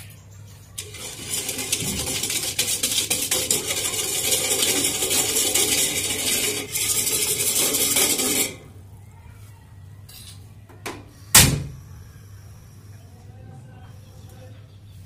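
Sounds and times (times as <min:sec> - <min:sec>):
whisk scraping metal bowl: 0:00.8 - 0:08.7.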